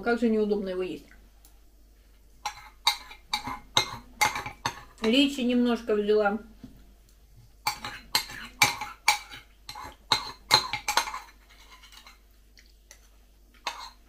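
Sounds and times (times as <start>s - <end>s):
metal spoon scraping ceramic bowl: 2.4s - 5.2s, 7.7s - 12.2s, 13.6s - 14.0s.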